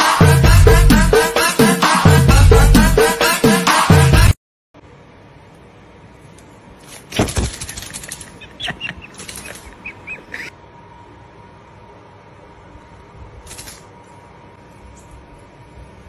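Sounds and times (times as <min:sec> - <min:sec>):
paper rustling and crinkling: 0:06.8 - 0:08.4.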